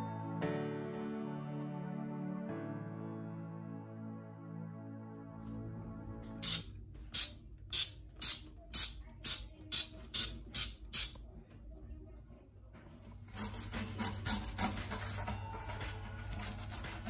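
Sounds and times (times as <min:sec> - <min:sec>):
spray bottle squirting: 0:06.4 - 0:11.1
scouring pad scrubbing metal: 0:13.2 - 0:17.0.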